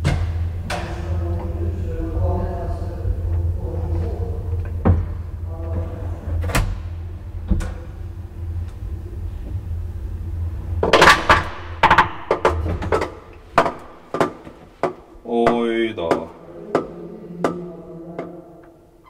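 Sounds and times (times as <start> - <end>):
elevator drive humming: 0.0 - 19.0
loud clatter: 10.8 - 14.3.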